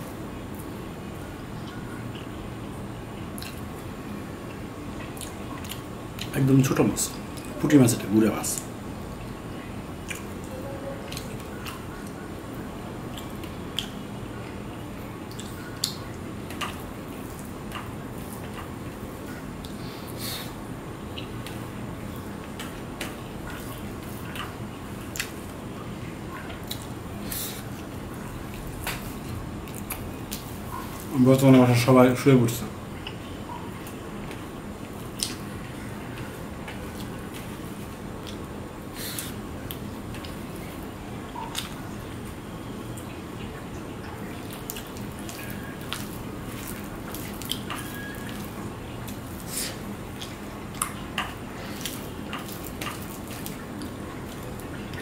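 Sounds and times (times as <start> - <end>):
wet chewing and mouth smacks: 3.3 - 3.7, 4.5 - 6.3, 10.0 - 10.4, 13.0 - 14.6, 15.2 - 19.0, 22.5 - 25.5, 26.3 - 31.1, 33.0 - 35.5, 41.4 - 41.8, 44.0 - 55.0.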